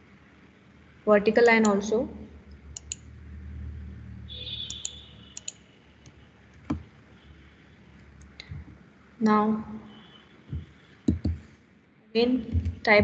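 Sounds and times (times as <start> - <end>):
computer mouse clicks: 2.5 - 3.1, 4.6 - 6.9, 10.5 - 11.4.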